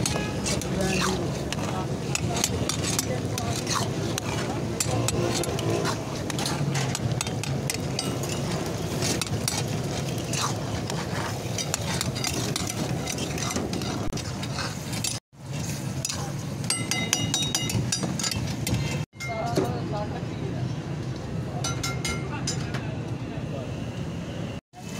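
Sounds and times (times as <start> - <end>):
food sizzling: 0.0 - 16.7
metal utensils scraping a wok: 0.0 - 19.0.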